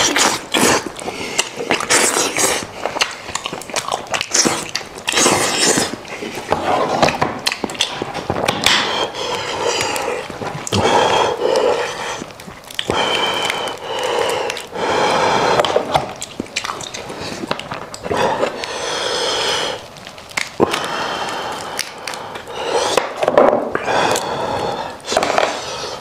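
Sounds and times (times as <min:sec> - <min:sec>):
bone snapping: 0:00.0 - 0:14.8, 0:15.5 - 0:18.8, 0:20.0 - 0:24.3
wet smacking and slurping: 0:00.0 - 0:18.8.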